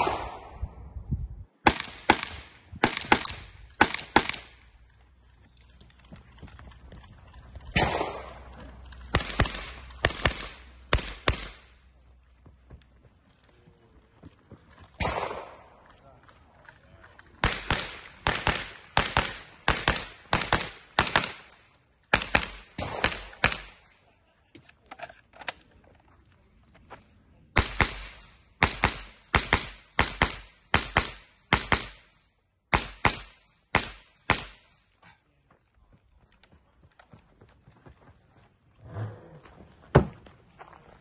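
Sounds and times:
rifle shots: 0.0 - 0.6, 1.6 - 4.7, 7.7 - 11.8, 15.0 - 15.8, 17.4 - 23.9, 27.6 - 32.1, 32.7 - 34.7.

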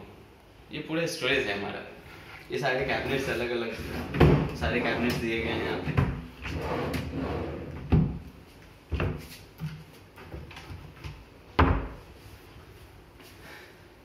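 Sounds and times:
drawer sliding rumble: 2.9 - 8.2
drawers knocking shut: 3.9 - 5.3.

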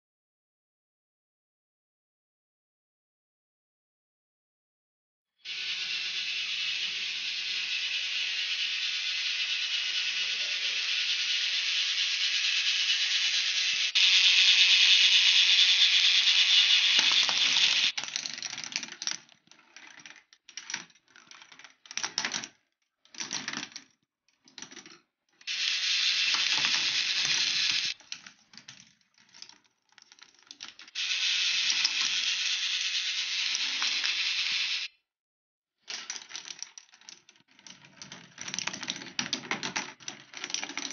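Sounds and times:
plastic balls rattling on tracks: 5.5 - 34.9, 35.9 - 40.9.

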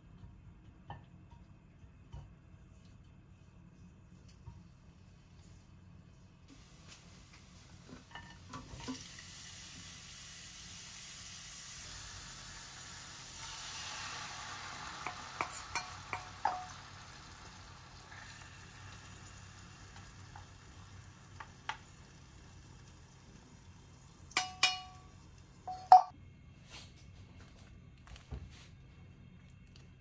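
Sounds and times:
vegetables sizzling in oil: 6.5 - 26.1.

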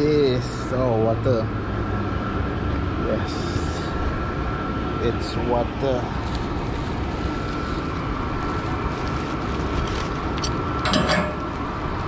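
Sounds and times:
rustle of handling a bag: 5.8 - 12.0.

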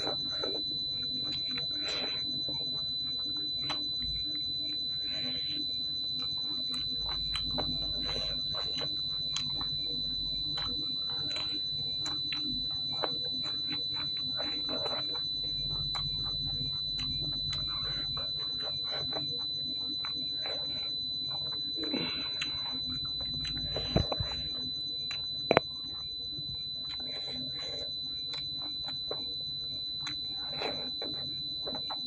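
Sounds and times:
wet chewing and lip smacks: 0.0 - 32.0
high-pitched electronic tone: 12.6 - 32.0.

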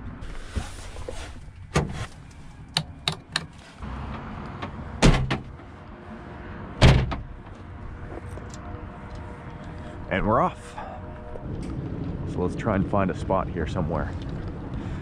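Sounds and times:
heavy van door slams: 5.0 - 5.6, 6.8 - 7.4.

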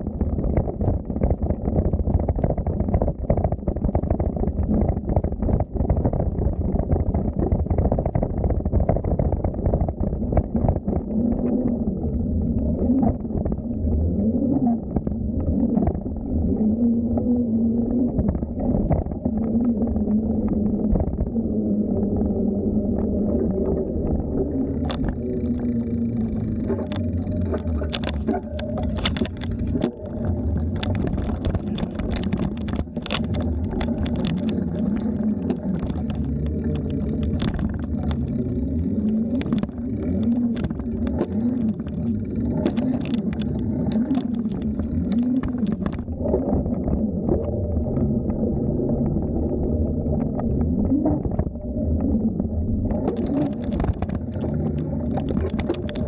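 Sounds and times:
bicycle rattling and crackling: 0.0 - 11.0, 24.2 - 51.9, 52.9 - 56.0
wind rumbling on microphone: 0.0 - 56.0.

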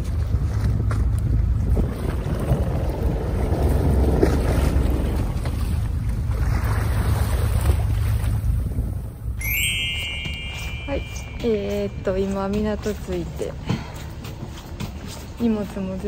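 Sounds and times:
wind buffeting microphone: 0.0 - 9.4
boat engine drone: 0.1 - 13.6.

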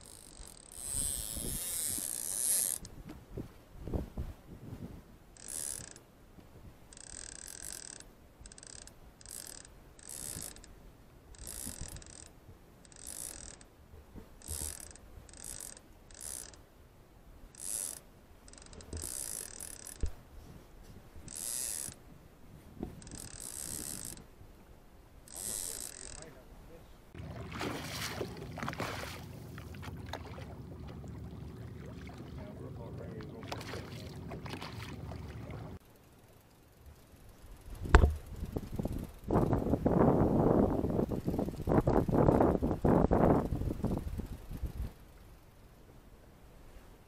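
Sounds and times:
fishing reel ratcheting: 0.0 - 3.0, 5.4 - 6.0, 6.9 - 13.7, 14.4 - 16.6, 17.5 - 20.1, 21.2 - 22.0, 23.0 - 24.3, 25.2 - 26.4, 35.8 - 45.5
boat and wind noise: 0.0 - 47.0.

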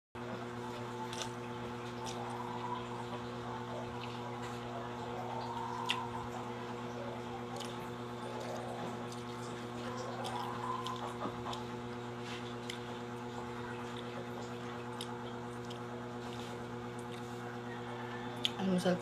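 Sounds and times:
electrical hum: 0.2 - 19.0
slurping and chewing noodles: 0.5 - 18.6
wet smacks and clicks: 1.0 - 2.3.

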